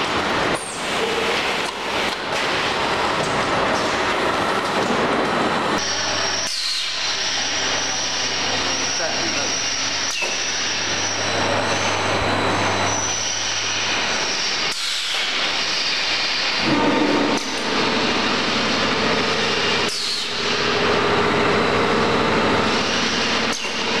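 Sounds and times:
packing machinery running: 0.0 - 24.0
motor whines: 5.8 - 24.0.

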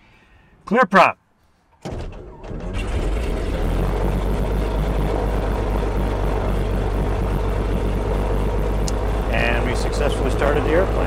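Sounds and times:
propeller plane engine idling: 2.6 - 11.0.

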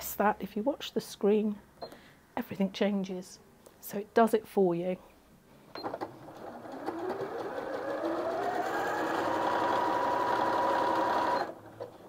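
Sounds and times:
sewing machine clicks: 5.8 - 12.0
sewing machine running: 6.0 - 12.0.

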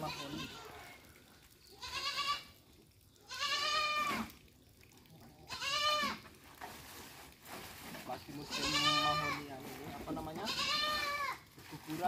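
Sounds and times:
goat kid bleating: 0.0 - 0.9, 1.7 - 2.6, 3.2 - 4.4, 5.4 - 6.2, 8.4 - 9.5, 10.3 - 11.4.

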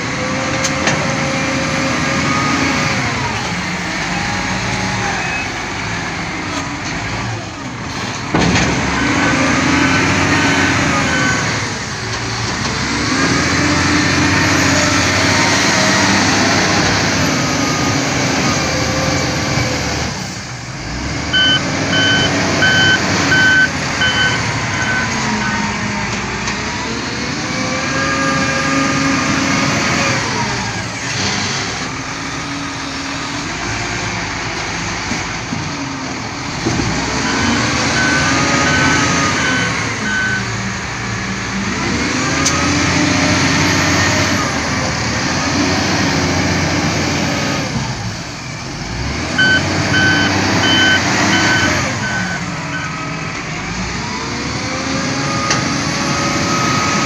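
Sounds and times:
wheel loader diesel engine: 0.0 - 57.0
reversing alarm beeping: 21.3 - 25.8, 37.2 - 40.6, 49.4 - 53.1.

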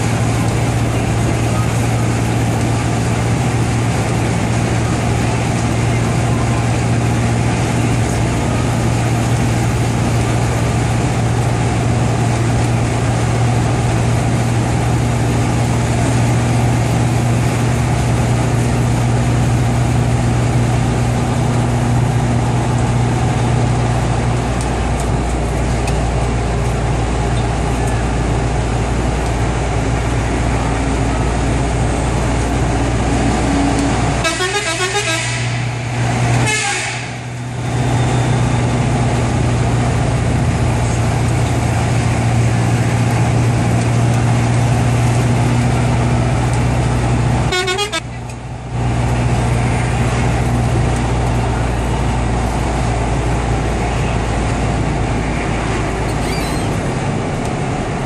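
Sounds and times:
bus diesel engine running: 0.0 - 58.0
air horn blasts: 34.2 - 35.7, 36.3 - 37.3, 47.5 - 48.2.

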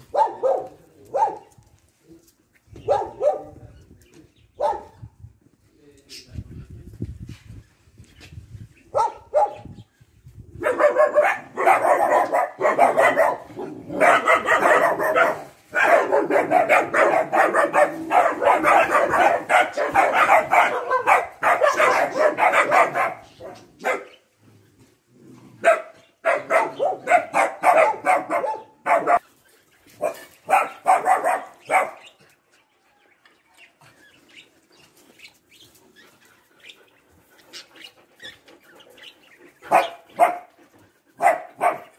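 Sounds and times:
dogs barking: 0.0 - 1.5, 2.8 - 3.6, 4.6 - 5.0, 8.9 - 9.6, 10.6 - 24.2, 25.6 - 29.2, 30.0 - 32.2, 39.0 - 41.9.

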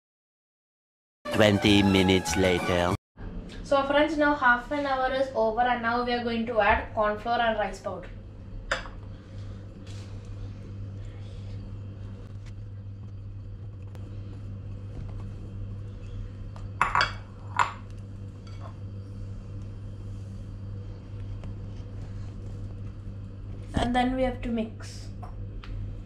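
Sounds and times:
steady low hum: 1.4 - 26.0
glass bowls clinking: 16.8 - 17.8.

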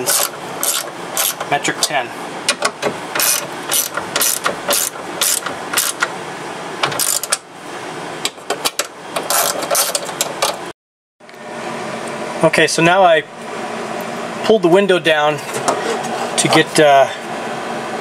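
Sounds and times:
ratchet wrench clicking: 0.0 - 1.4, 3.2 - 6.0, 7.0 - 7.4.

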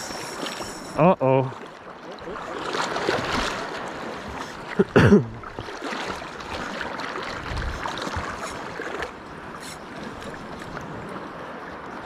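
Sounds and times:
seawater sloshing around legs: 1.6 - 4.8, 5.4 - 11.0.

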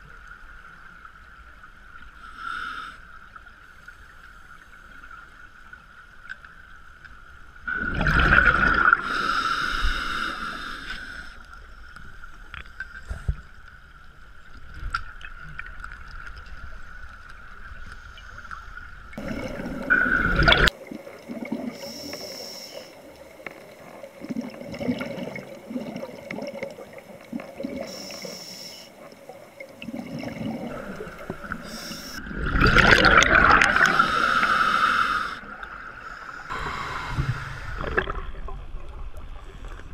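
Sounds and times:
faint steady hum: 0.0 - 39.9
underwater bubbles gurgling: 7.6 - 13.6, 14.5 - 39.9.

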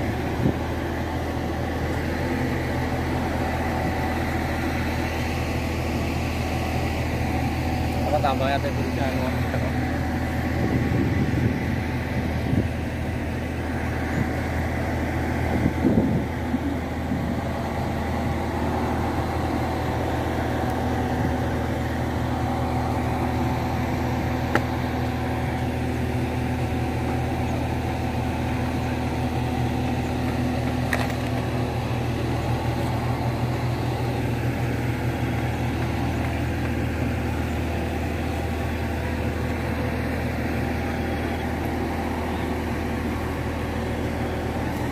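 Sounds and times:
crane engine running: 0.0 - 44.9.

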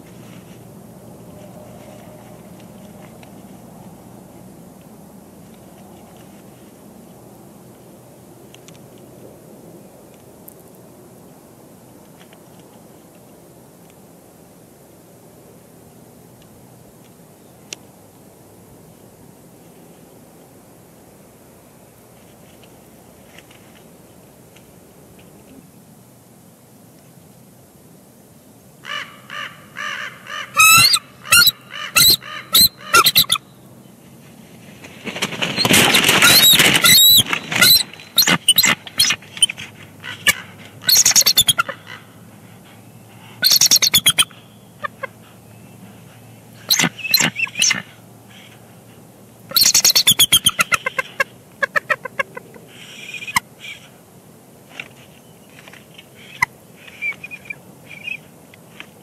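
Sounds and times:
eagles chattering: 28.9 - 33.4, 35.6 - 42.1, 43.4 - 48.6, 49.5 - 53.8
loud noisy rush of wings: 34.0 - 43.5.

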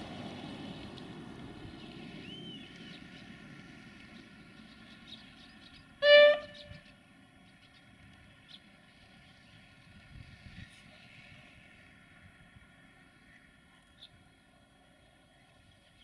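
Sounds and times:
diesel engine running: 0.0 - 7.5
train horn blast: 6.0 - 6.8.

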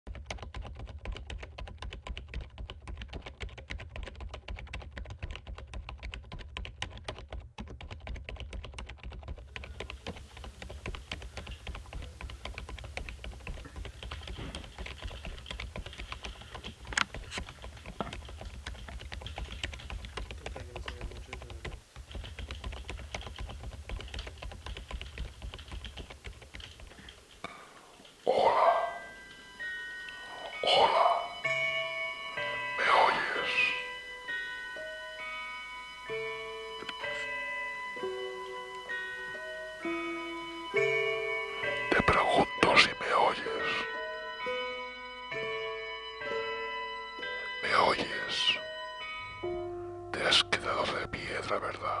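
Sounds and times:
fast typing on computer keyboard: 0.1 - 27.4.

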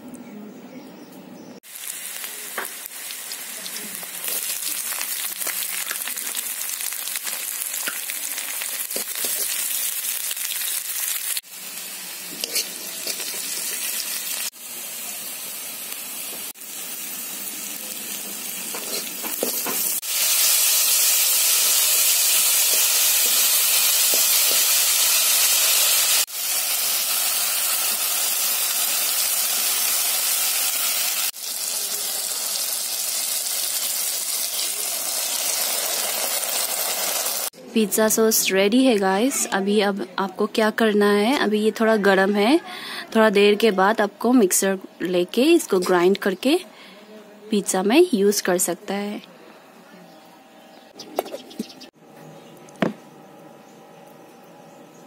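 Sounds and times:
oil sizzling: 1.6 - 37.6.

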